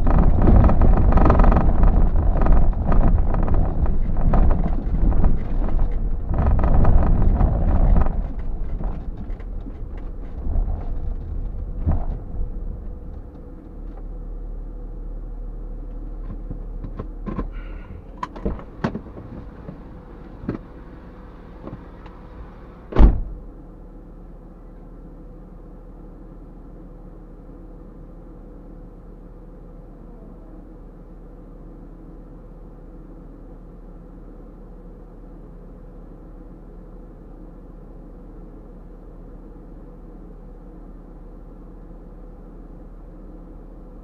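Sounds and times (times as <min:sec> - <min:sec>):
steady low hum: 0:00.0 - 0:44.0
vehicle engine idling: 0:00.0 - 0:44.0
heavy clunk: 0:22.9 - 0:23.5.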